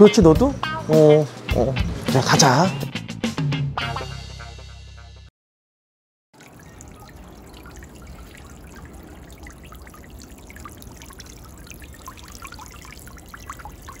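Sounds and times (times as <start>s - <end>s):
droplet splashes: 6.4s - 14.0s
fountain water trickling: 6.4s - 14.0s.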